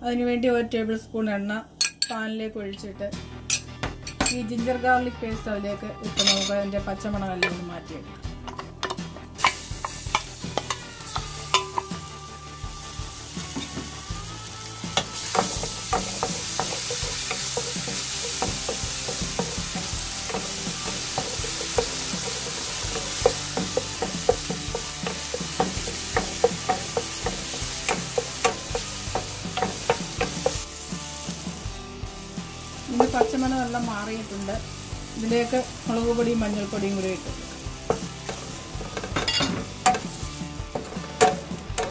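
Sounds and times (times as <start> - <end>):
paste sizzling in hot oil: 9.4 - 41.9
spatula tapping pan: 15.0 - 30.7, 32.9 - 33.8, 37.7 - 41.9.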